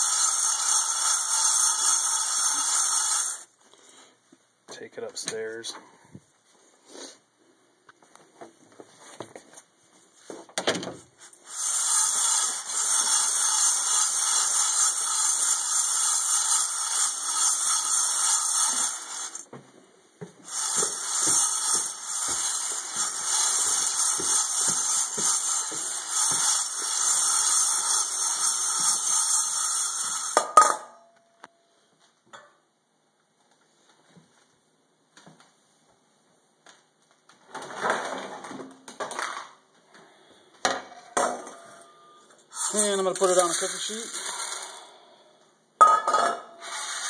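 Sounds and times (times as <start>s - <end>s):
coffee beans rattling in metal bowl: 0.0s - 3.5s, 11.4s - 19.4s, 20.5s - 30.8s, 42.5s - 45.0s.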